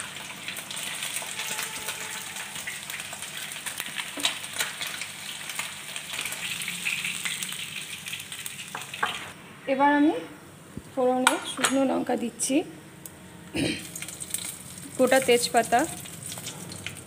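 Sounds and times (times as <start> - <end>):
fish sizzling in oil: 0.0 - 9.3, 13.8 - 17.0.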